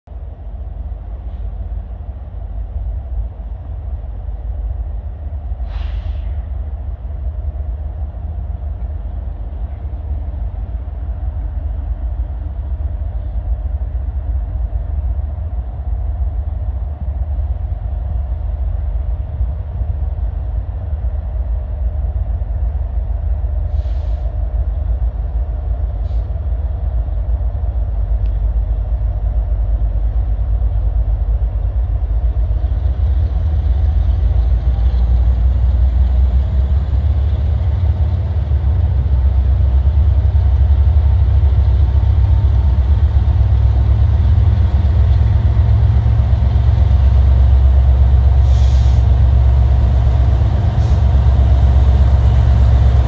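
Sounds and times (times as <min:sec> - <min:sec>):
diesel train rumble: 0:00.0 - 0:53.0
short hisses: 0:05.6 - 0:06.5, 0:23.7 - 0:24.3, 0:48.4 - 0:49.1.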